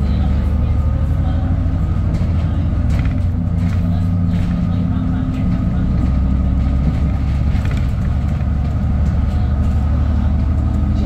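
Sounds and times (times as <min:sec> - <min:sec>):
bus engine rumbling: 0:00.0 - 0:11.0.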